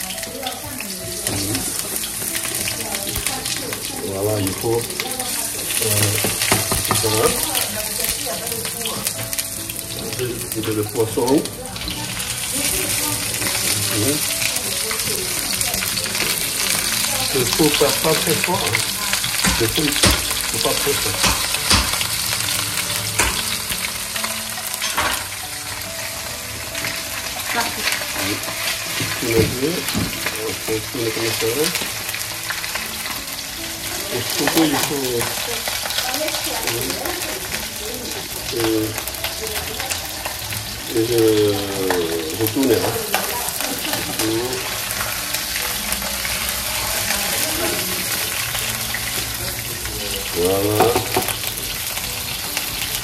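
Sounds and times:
fish sizzling in a frying pan: 0.0 - 53.0
pan knocking on hob: 6.2 - 7.5, 18.8 - 22.2, 28.9 - 30.4, 50.7 - 51.5.

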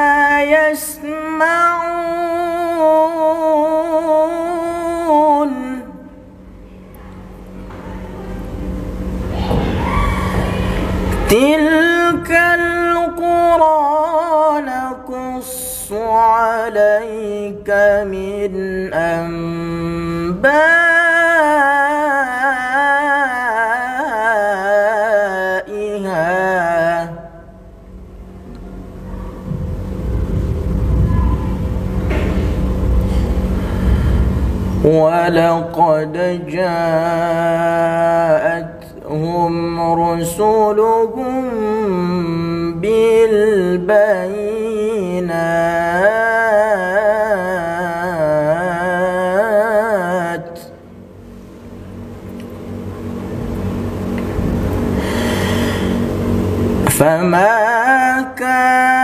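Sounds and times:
man reciting melodically: 0.0 - 6.0, 11.3 - 27.6, 34.8 - 50.8, 56.9 - 59.0.

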